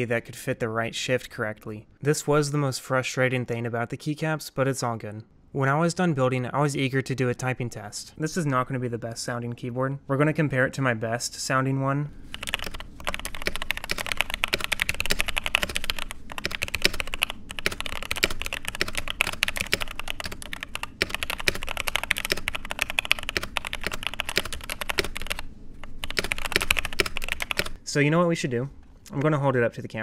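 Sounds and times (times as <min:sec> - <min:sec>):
fast typing on mechanical keyboard: 0:12.3 - 0:27.8.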